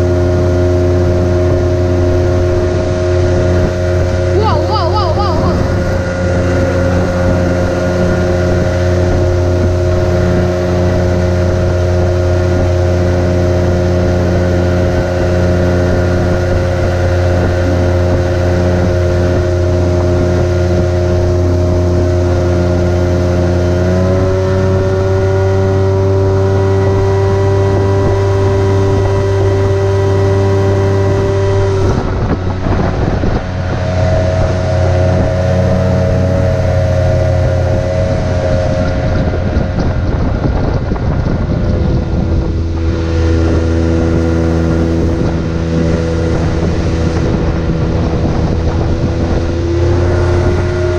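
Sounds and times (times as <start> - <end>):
outboard motor running: 0.0 - 50.9
rough rushing noise: 31.2 - 50.9.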